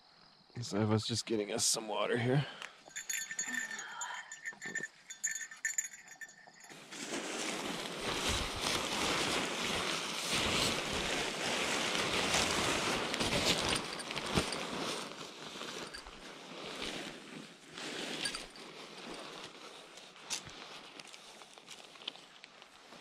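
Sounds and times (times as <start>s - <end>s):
tent fabric rustling: 5.2s - 23.0s.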